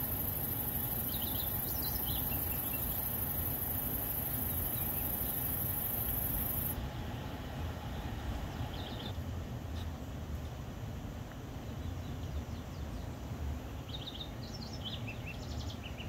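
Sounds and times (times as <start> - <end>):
high-pitched hiss: 0.0 - 6.8
bird chirps: 0.9 - 3.2.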